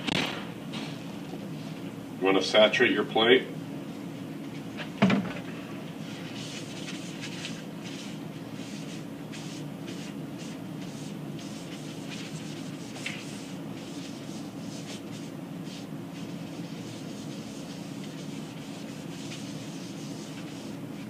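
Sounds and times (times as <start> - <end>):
knock: 5.0 - 5.4
paper towel wiping plate: 6.0 - 21.0.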